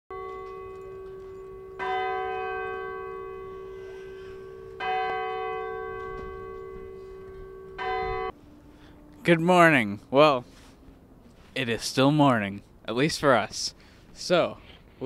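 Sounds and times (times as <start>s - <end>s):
bell tolling: 0.1s - 10.0s.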